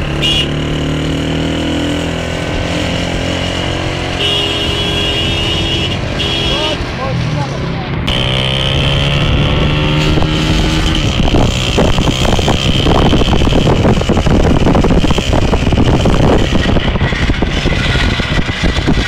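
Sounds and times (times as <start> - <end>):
small motorcycle engine revving: 0.0 - 6.8, 8.0 - 19.0
wind buffeting microphone: 8.1 - 19.0.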